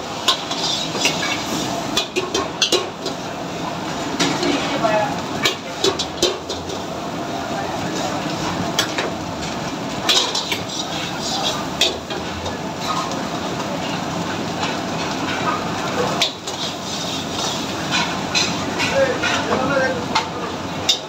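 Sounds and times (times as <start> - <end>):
gas range and hood rumbling: 0.0 - 21.0
metal ladle scraping in pan: 0.2 - 3.2, 10.1 - 12.2, 16.2 - 19.5.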